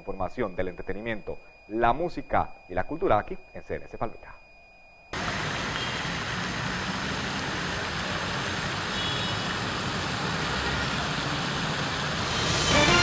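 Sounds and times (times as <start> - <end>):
traffic noise: 5.2 - 13.0.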